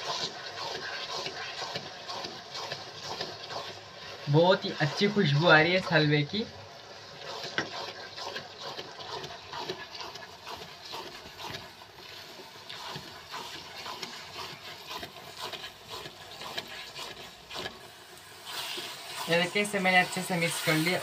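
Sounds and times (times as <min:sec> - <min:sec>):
spatula scraping a pot: 0:00.0 - 0:21.0.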